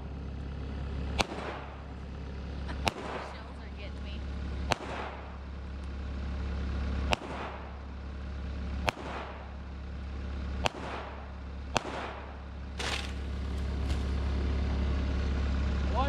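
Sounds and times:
engine humming low: 0:00.0 - 0:16.0
pistol shots echoing: 0:01.2 - 0:01.8, 0:02.8 - 0:03.3, 0:04.7 - 0:05.4, 0:07.1 - 0:07.8, 0:08.8 - 0:09.5, 0:10.6 - 0:12.4.

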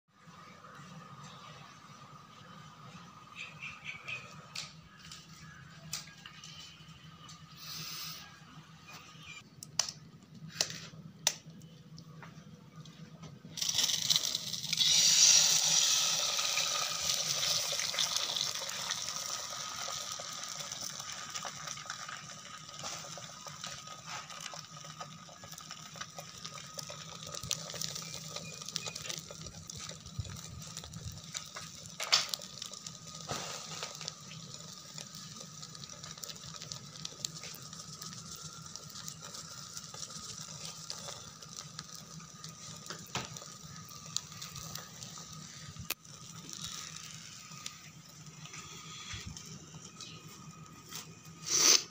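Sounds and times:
egg sizzling on hot pan: 0:13.6 - 0:51.9.

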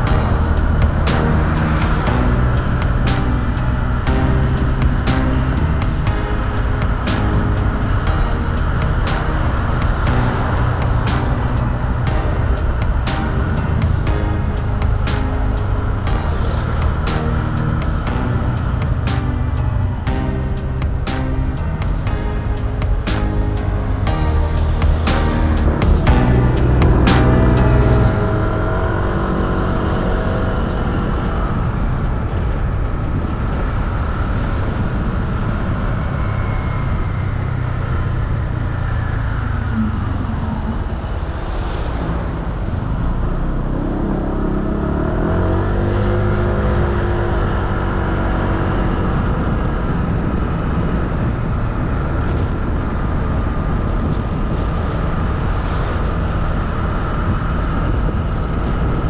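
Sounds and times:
motorcycle engine running: 0:00.0 - 0:31.4
road and wind noise: 0:00.0 - 0:59.0.

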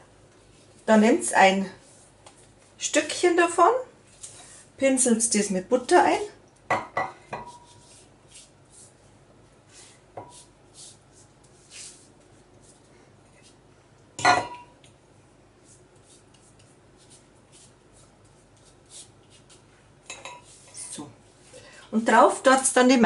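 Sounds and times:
pastry brush swishing: 0:07.4 - 0:13.7, 0:15.6 - 0:21.5
metal bowl clanking on counter: 0:14.2 - 0:14.8.

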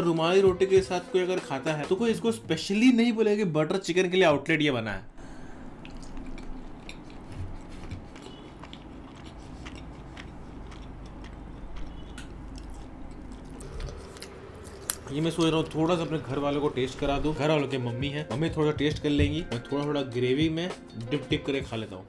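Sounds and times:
wet chewing mouth sounds: 0:05.4 - 0:16.4.

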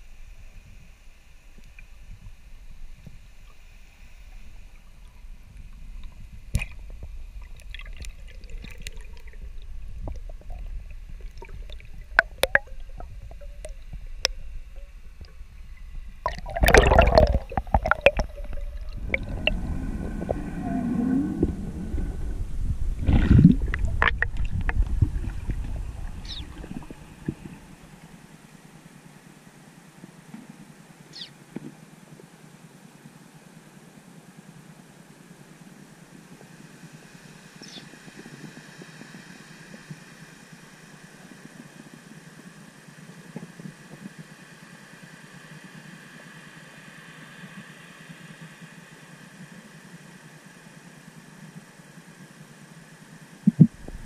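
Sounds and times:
low underwater rumble: 0:00.5 - 0:28.3, 0:53.4 - 0:54.0
gurgling bubble bursts: 0:07.4 - 0:14.3, 0:16.2 - 0:27.8, 0:53.4 - 0:54.0.

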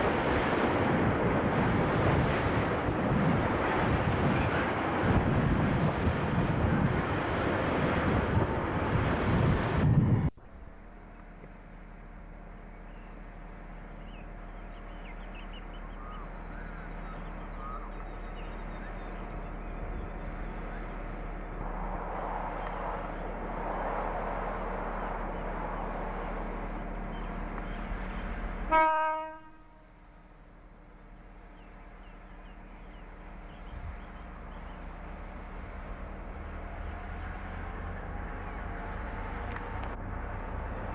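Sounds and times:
diesel locomotive engine humming: 0:00.0 - 0:40.9
locomotive horn toot: 0:28.7 - 0:30.2.

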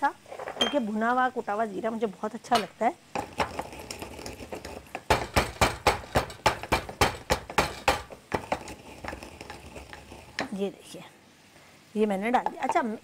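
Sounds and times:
pestle pounding in wooden mortar: 0:03.2 - 0:10.6.

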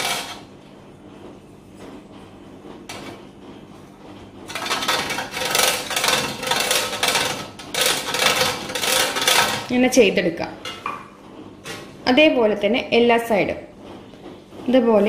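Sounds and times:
ceramic scraping on metal grater: 0:04.5 - 0:09.7.

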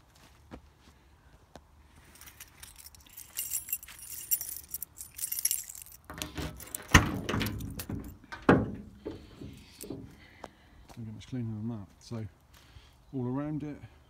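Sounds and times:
keys jangling: 0:02.0 - 0:10.1
key turning in lock: 0:02.5 - 0:08.6
lock releasing with a clunk: 0:06.0 - 0:10.1.

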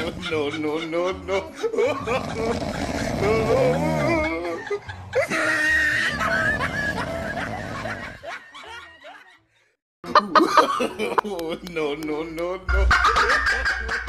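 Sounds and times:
person snickering and chuckling: 0:00.0 - 0:09.4, 0:10.1 - 0:11.7.

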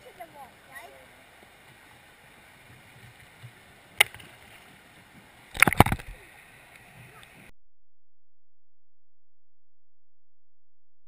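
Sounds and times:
muffled river water: 0:00.0 - 0:07.5.

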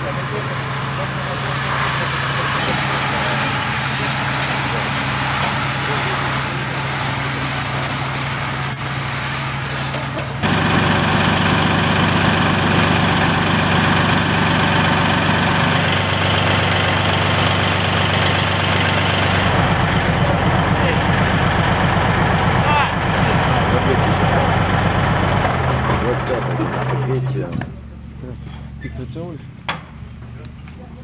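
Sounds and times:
heavy vehicle engines idling: 0:00.0 - 0:31.0
engine running with fast low pulse: 0:10.4 - 0:28.3.

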